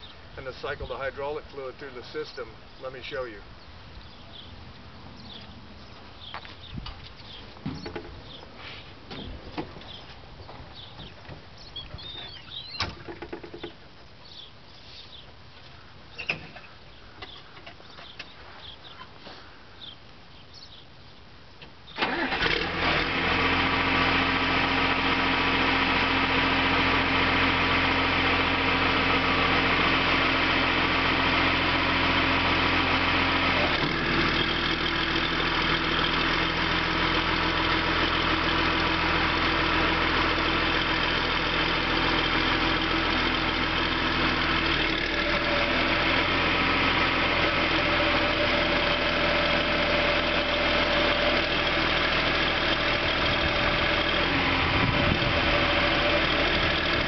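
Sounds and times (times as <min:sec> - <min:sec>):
diesel engine idling: 0:22.0 - 0:57.0.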